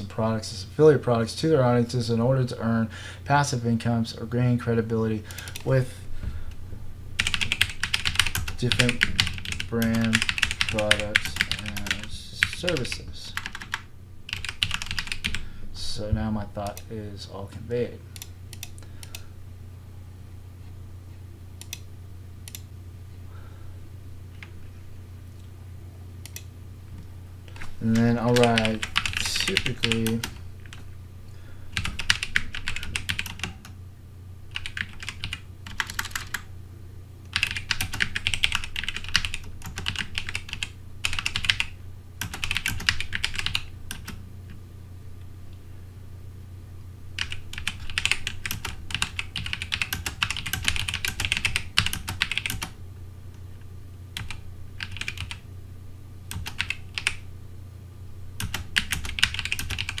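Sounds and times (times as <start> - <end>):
steady low hum: 0.0 - 60.0
typing on a keyboard: 7.2 - 12.0, 12.7 - 15.4, 28.3 - 30.8, 31.8 - 33.6, 34.5 - 36.4, 37.3 - 44.2, 47.2 - 52.7, 54.2 - 55.4, 56.3 - 57.2, 58.4 - 60.0.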